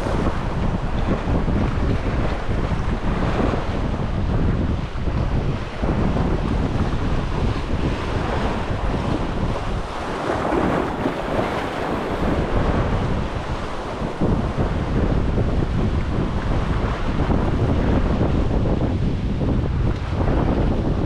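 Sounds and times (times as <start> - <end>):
waves washing: 0.0 - 21.0
wind buffeting microphone: 0.0 - 21.0.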